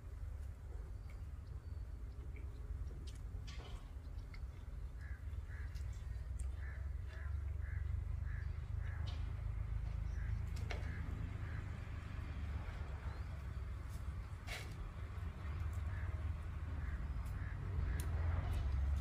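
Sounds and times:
steady low rumble: 0.0 - 19.0
bird calling: 4.8 - 11.8.

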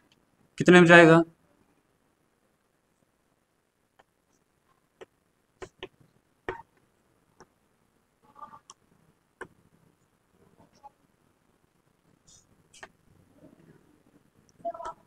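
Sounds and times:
chalk tapping on chalkboard: 5.0 - 6.6.

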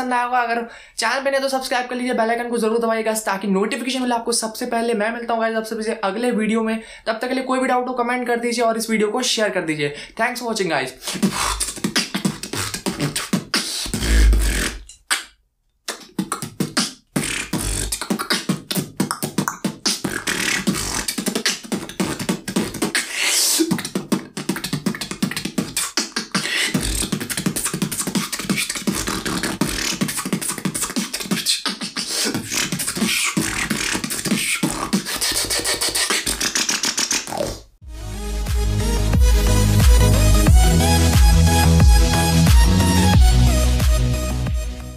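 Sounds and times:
man beatboxing: 9.3 - 15.3, 15.9 - 37.7, 39.2 - 44.8.

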